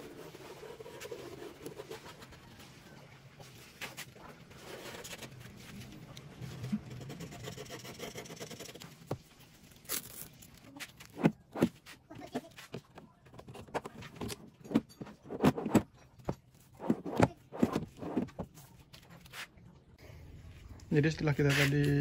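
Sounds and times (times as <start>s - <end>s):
hand tool scraping: 16.7s - 18.4s.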